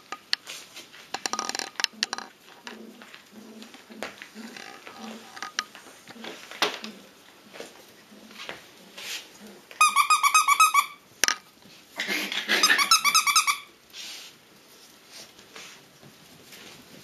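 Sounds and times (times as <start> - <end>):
paws scrabbling on tile: 0.1 - 10.0, 13.9 - 17.0
puppies yelping: 12.1 - 13.7.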